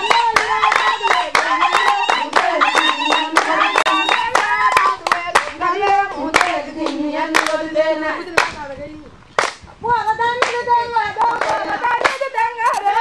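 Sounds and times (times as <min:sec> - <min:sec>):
hand clapping: 0:00.0 - 0:06.6, 0:09.4 - 0:09.6
women singing together: 0:00.0 - 0:09.1, 0:09.8 - 0:13.0.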